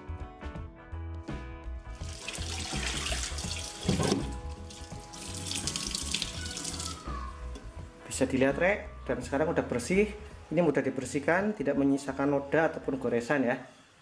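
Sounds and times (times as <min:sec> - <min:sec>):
background music: 0:00.0 - 0:14.0
tap water running into sink: 0:02.0 - 0:07.1
water splashing into sink: 0:02.0 - 0:07.2.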